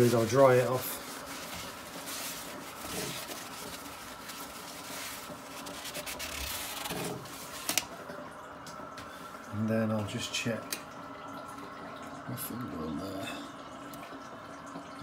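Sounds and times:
tissue paper rubbing ceramic: 0.0 - 7.8.

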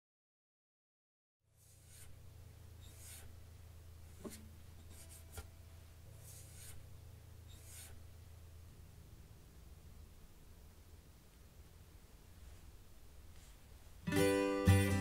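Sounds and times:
low room hum: 1.5 - 15.0
hand brushing guitar strings: 1.6 - 2.2, 2.8 - 3.4, 4.0 - 6.9, 7.5 - 8.0.

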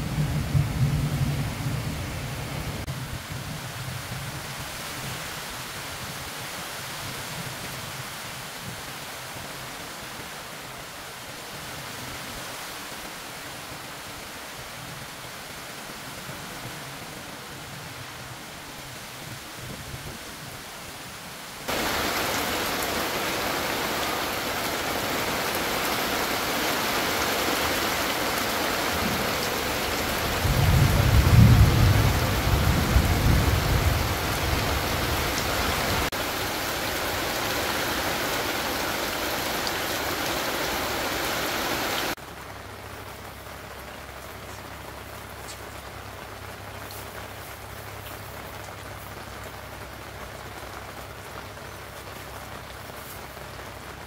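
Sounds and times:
thunder rumble: 0.0 - 4.2, 28.3 - 36.2
heavy rain falling: 0.0 - 54.0.

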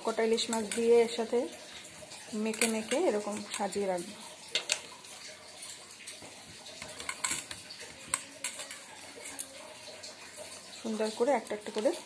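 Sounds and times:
fish pieces tapping steel bowls: 0.2 - 1.2, 2.3 - 4.9, 6.8 - 9.6.

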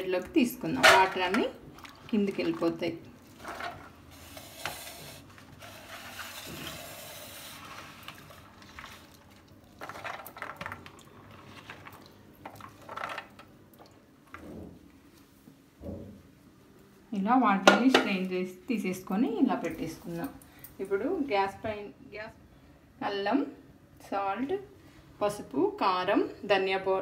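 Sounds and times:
water trickling through colander: 0.0 - 14.6
wet beans rustling: 0.3 - 13.9.

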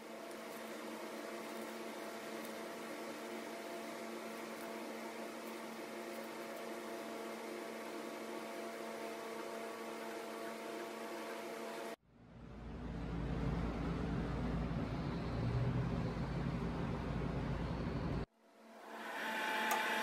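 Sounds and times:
motor humming: 18.8 - 20.0.

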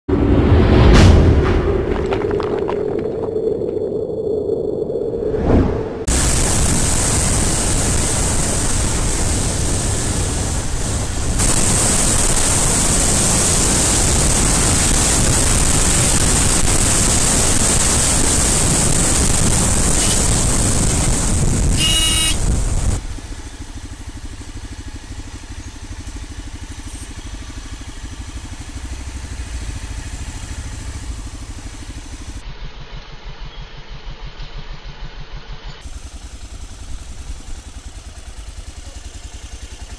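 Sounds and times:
motorcycle engine: 0.1 - 39.9
wind and road noise: 0.1 - 39.9
horn beep: 21.7 - 22.4.

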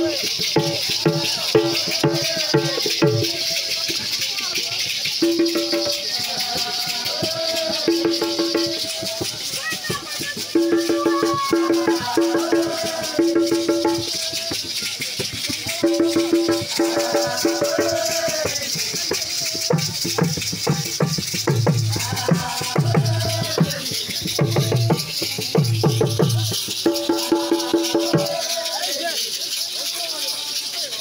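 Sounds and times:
hand rattles shaken: 0.0 - 31.0
congregation chanting in unison: 6.0 - 9.0, 11.6 - 14.4, 16.6 - 18.9, 21.9 - 24.1, 27.2 - 29.2.

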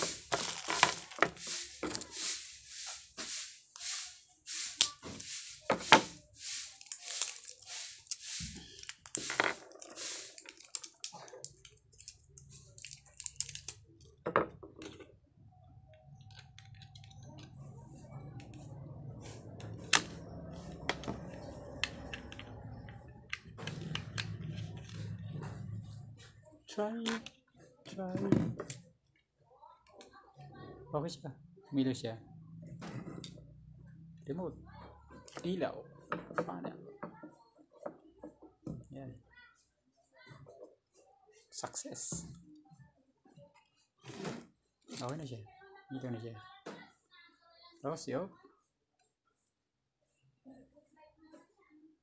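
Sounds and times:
parts scraping on wooden table: 0.0 - 10.5.

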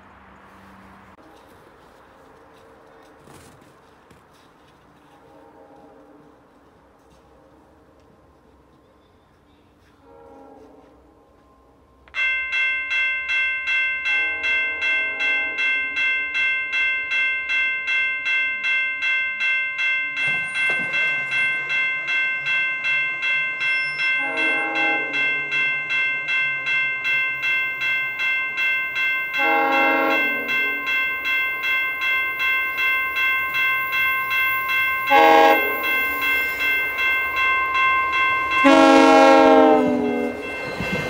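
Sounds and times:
train horn: 1.2 - 2.3, 5.0 - 7.1, 9.7 - 12.0, 14.1 - 15.9, 24.2 - 25.6, 29.3 - 30.9, 35.0 - 36.1, 38.5 - 40.4
railway warning bell ringing: 11.3 - 41.0.

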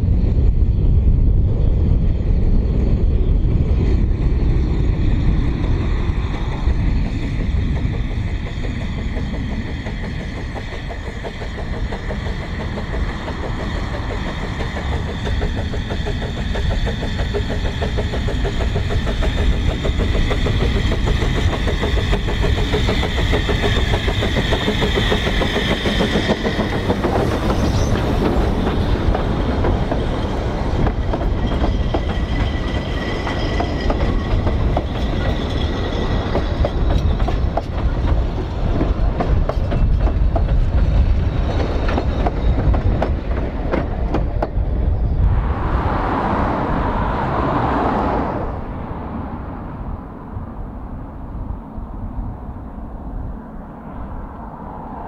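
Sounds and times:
train carriages rumbling: 0.0 - 55.0
steam locomotive high tone: 2.2 - 49.2
wheels clicking over rail joints: 5.3 - 44.7.

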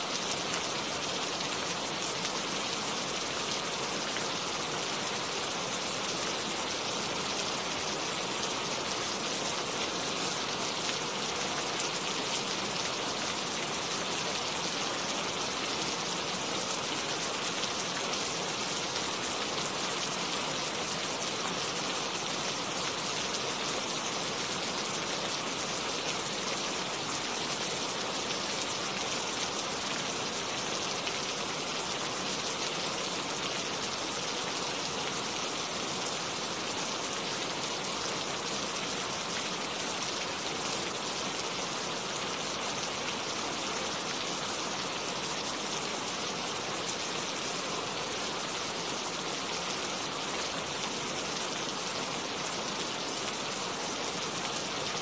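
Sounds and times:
steady rain falling: 0.0 - 55.0.

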